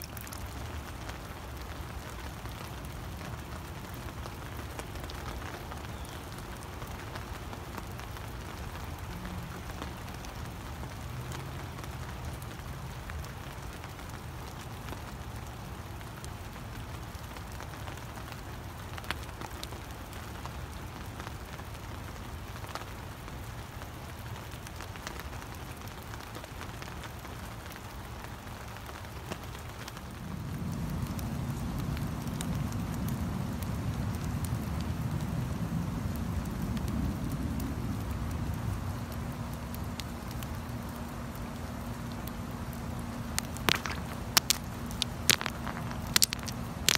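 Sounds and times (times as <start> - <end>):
water drips ticking: 0.0 - 13.7, 39.0 - 46.9
rain on leaves: 0.0 - 46.9.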